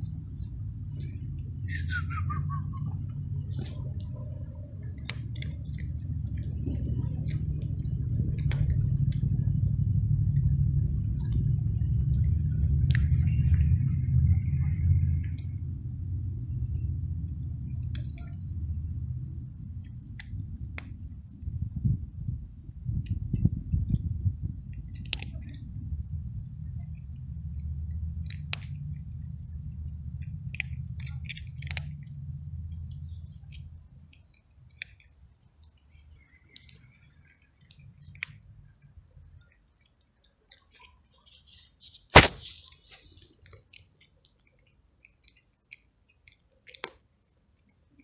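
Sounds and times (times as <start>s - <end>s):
low rumble: 0.0s - 34.0s
cat crunching dry kibble: 2.9s - 11.5s, 22.0s - 48.0s
sharp click: 41.4s - 42.8s.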